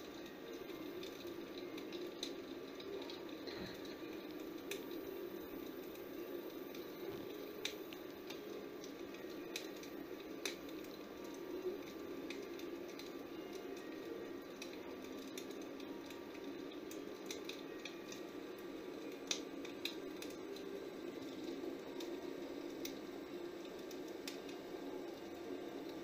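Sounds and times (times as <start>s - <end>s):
log fire crackling and popping: 0.0s - 26.0s
low steady murmur: 0.0s - 26.0s.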